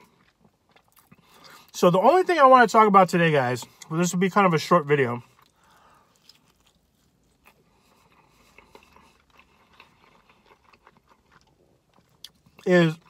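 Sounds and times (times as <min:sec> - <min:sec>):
person chewing: 0:00.0 - 0:01.7, 0:05.2 - 0:13.0.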